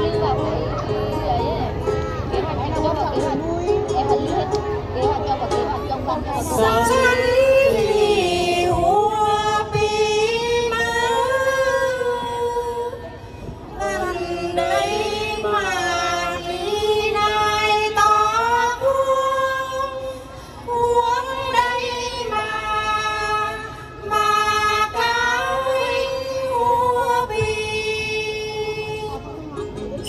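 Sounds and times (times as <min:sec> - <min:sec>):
women singing a chant: 0:06.3 - 0:29.2.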